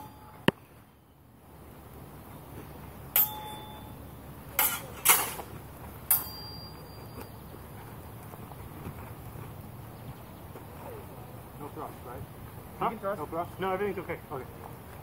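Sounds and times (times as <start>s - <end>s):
swords clashing: 3.2s - 3.6s, 4.5s - 5.5s, 6.1s - 6.6s.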